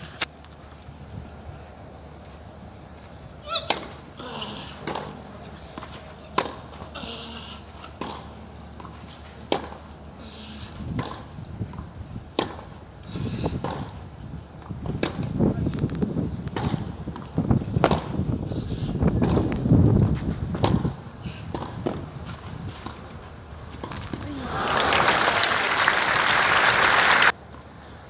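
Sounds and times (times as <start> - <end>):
rackets hitting tennis ball: 3.5 - 4.1, 4.8 - 6.9, 7.8 - 9.9, 10.7 - 12.8, 13.5 - 14.0, 14.8 - 15.9, 16.5 - 17.0, 17.8 - 18.2, 19.2 - 19.6, 20.5 - 22.1
crowd noise: 24.4 - 27.3.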